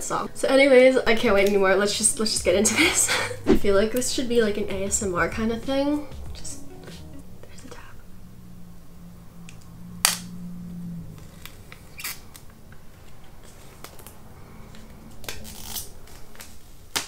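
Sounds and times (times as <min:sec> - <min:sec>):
shrink-wrap snapping: 0:14.8 - 0:17.0.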